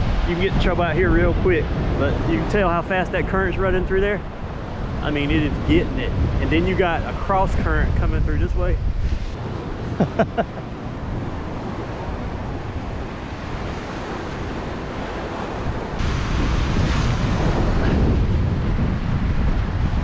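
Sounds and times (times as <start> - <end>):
surf washing onto beach: 0.0 - 8.3, 9.0 - 20.0
wind rumbling on microphone: 0.0 - 20.0.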